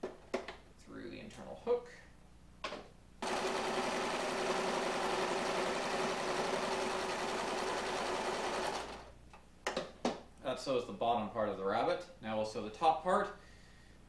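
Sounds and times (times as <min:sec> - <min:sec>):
sewing machine running: 0:03.2 - 0:09.1.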